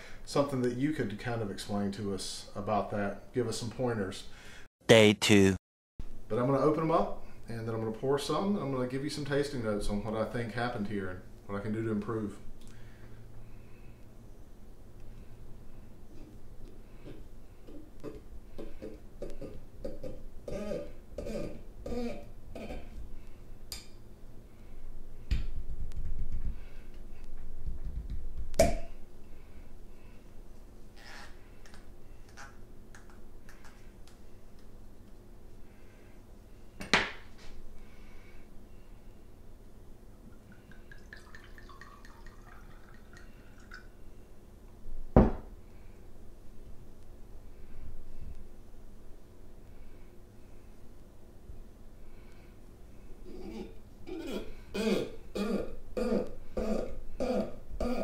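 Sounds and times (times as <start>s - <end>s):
glass bottle knocking on countertop: 45.2s - 45.4s.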